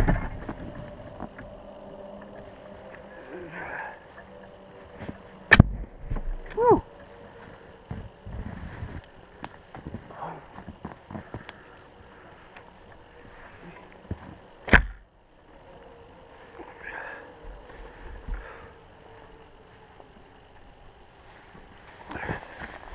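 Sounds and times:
faint steady hum: 0:00.0 - 0:22.9.

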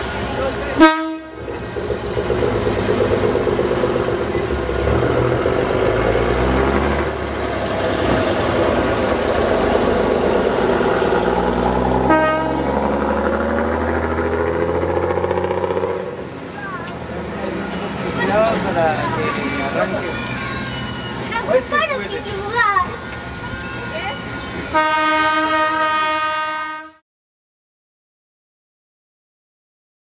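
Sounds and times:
railcar engine running: 0:00.0 - 0:27.0
railcar horn toot: 0:00.8 - 0:01.4, 0:12.1 - 0:12.8, 0:24.7 - 0:27.0.

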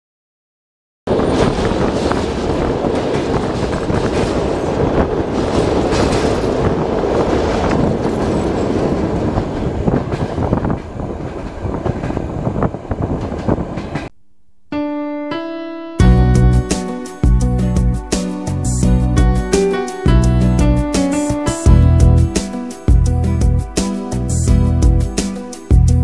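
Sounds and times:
train wheels clattering on rails: 0:01.1 - 0:14.1.

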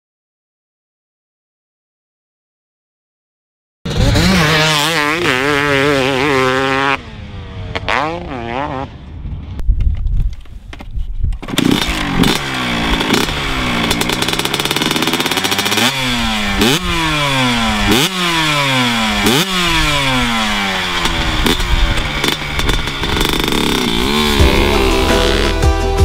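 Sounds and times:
two-stroke engine revving: 0:03.9 - 0:09.0, 0:11.4 - 0:25.8.

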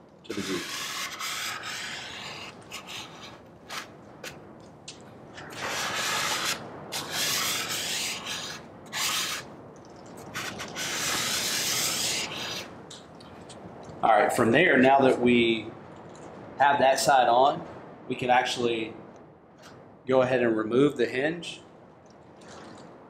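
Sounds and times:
plastic squeegee scraping: 0:00.3 - 0:04.4, 0:10.2 - 0:12.7.

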